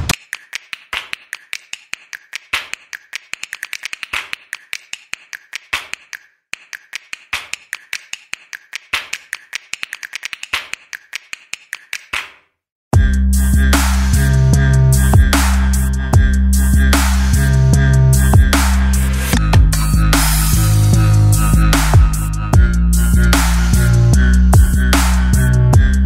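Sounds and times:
fast sharp clicks: 0:00.1 - 0:12.4.

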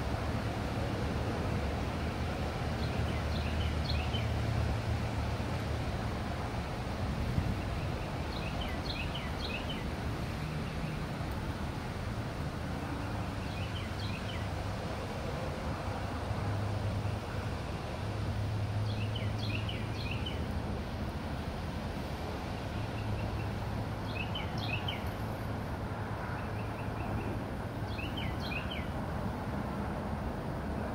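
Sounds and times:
low rumble and hiss: 0:00.0 - 0:30.9
small birds chirping: 0:07.6 - 0:09.9, 0:22.6 - 0:25.2, 0:27.9 - 0:28.9.

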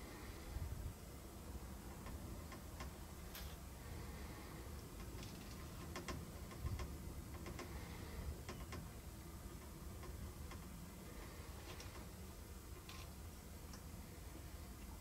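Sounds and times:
faint irregular clicks: 0:01.9 - 0:03.6, 0:04.6 - 0:14.0.

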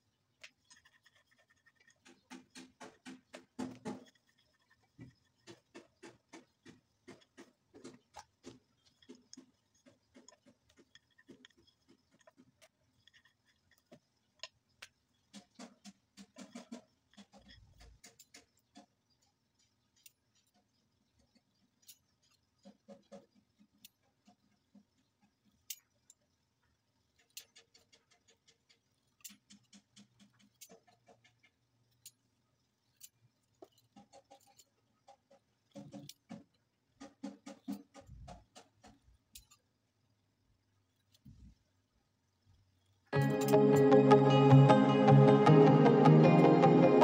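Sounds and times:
rolling pin clicking on counter: 0:00.8 - 0:18.9.

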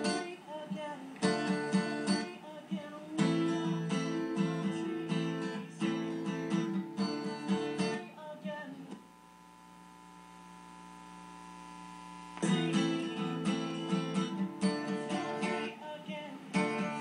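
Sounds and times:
acoustic guitar strumming: 0:00.0 - 0:09.0, 0:12.4 - 0:17.0
steady held tone: 0:08.8 - 0:14.3.

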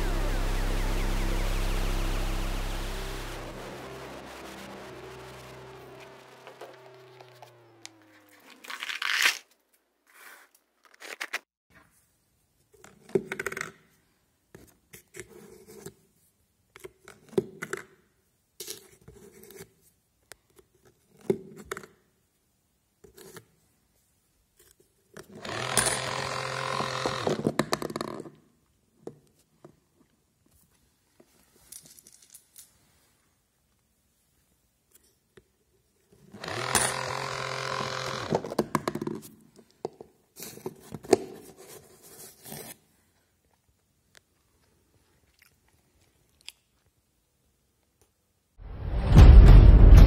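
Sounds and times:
small electric motor running: 0:03.4 - 0:09.0, 0:25.4 - 0:27.4, 0:36.4 - 0:38.6.

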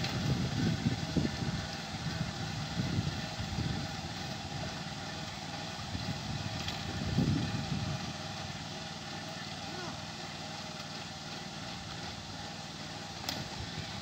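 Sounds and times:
small engine running: 0:00.0 - 0:14.0.

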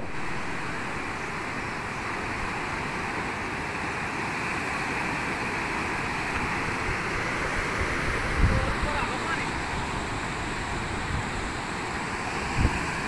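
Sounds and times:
floodwater rushing against bridge: 0:00.0 - 0:13.0.

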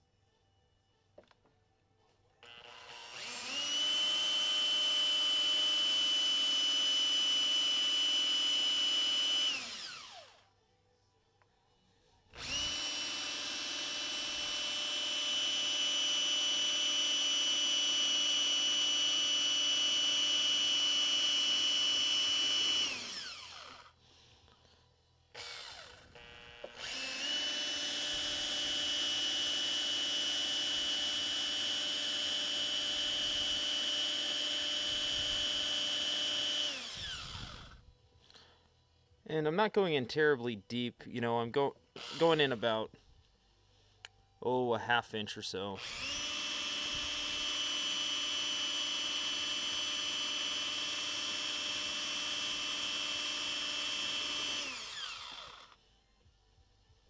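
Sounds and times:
cordless drill drilling metal: 0:02.4 - 0:10.4, 0:12.3 - 0:24.0, 0:25.3 - 0:37.8, 0:42.0 - 0:42.8, 0:45.8 - 0:55.8.

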